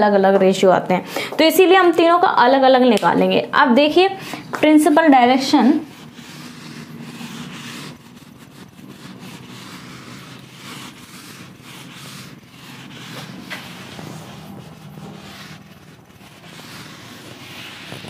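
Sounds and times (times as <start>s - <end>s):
eraser rubbing whiteboard: 4.0s - 18.0s.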